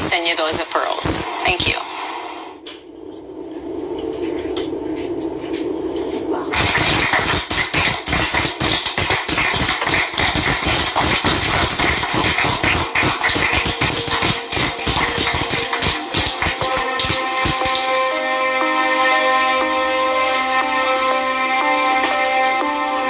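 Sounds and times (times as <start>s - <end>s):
theme music with fast beat: 6.6s - 23.0s.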